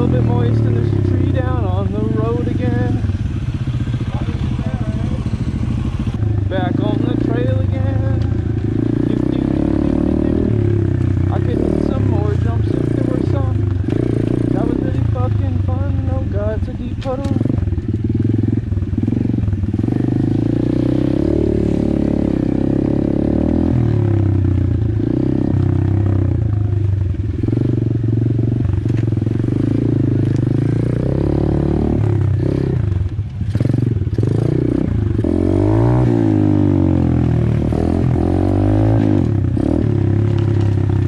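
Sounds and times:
bike rattling: 0.0s - 41.0s
motorbike engine revving: 0.0s - 41.0s.

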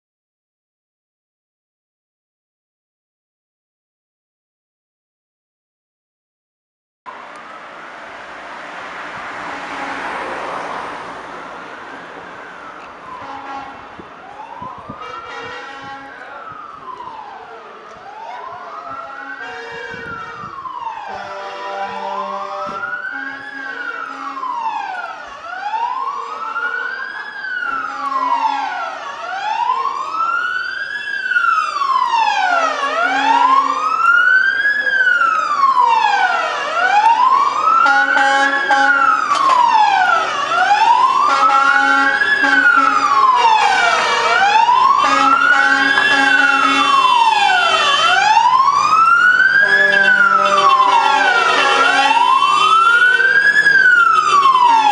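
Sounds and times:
fire engine siren wailing: 7.1s - 54.9s.

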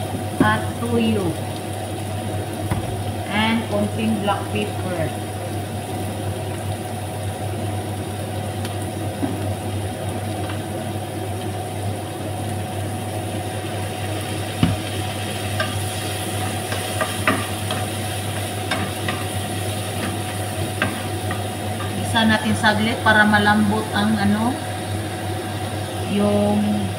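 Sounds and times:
steady low hum: 0.0s - 26.9s
vegetables sizzling in a frying pan: 0.0s - 26.9s
wooden spoon stirring and tapping pan: 15.6s - 22.1s.

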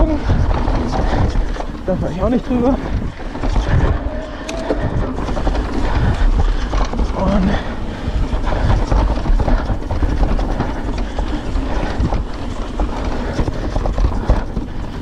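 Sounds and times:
bike rattling over bumps: 0.0s - 15.0s
bike tyres rumbling on dirt: 0.0s - 15.0s.

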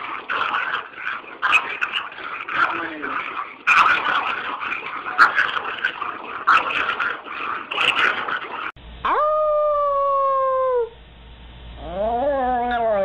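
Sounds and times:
small dog howling: 9.0s - 11.0s, 11.8s - 13.0s.

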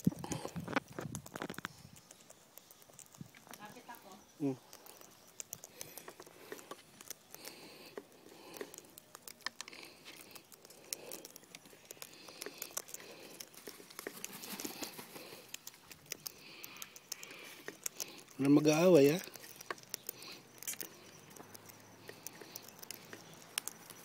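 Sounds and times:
birds cracking seed: 0.0s - 24.0s.

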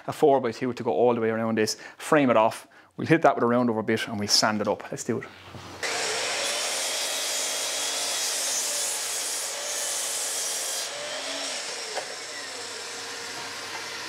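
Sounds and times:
mitre saw cutting timber: 5.8s - 14.0s.

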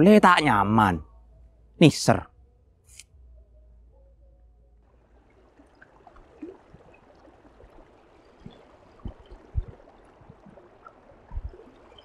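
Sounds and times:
dull low thumps: 8.4s - 10.6s, 11.3s - 11.6s.

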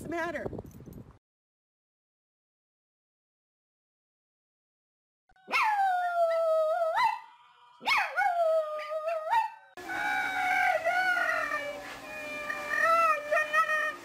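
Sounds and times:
husky howling and yowling: 5.4s - 14.0s
small dog howling: 5.4s - 14.0s
hose sprayer hissing: 9.8s - 14.0s.

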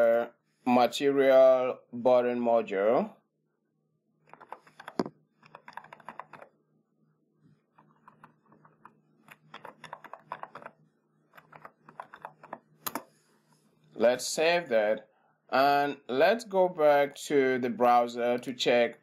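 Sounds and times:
keyboard typing: 4.3s - 6.5s, 7.8s - 13.1s.

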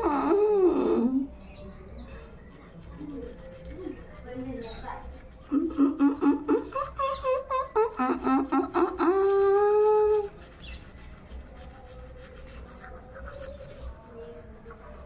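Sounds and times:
woman mumbling while brushing teeth: 0.0s - 1.5s, 5.3s - 10.4s.

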